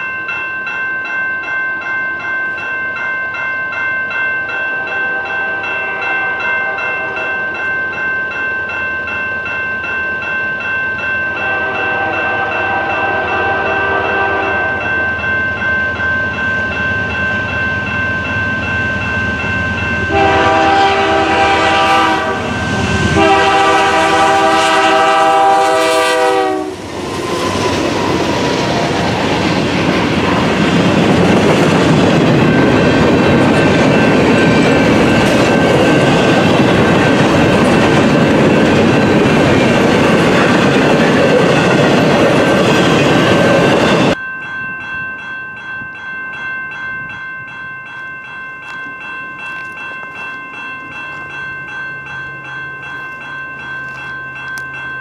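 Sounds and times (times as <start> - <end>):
crossing bell ringing: 0.0 - 55.0
train rumble and wheel clatter: 4.1 - 55.0
locomotive air horn blasts: 4.8 - 7.4, 11.4 - 14.9, 20.1 - 26.8.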